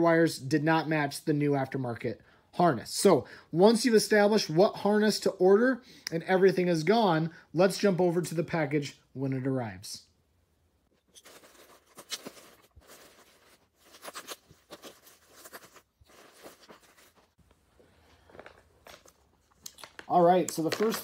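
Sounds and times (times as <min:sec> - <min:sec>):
plastic packaging crinkling: 0:11.0 - 0:17.4, 0:18.2 - 0:21.0.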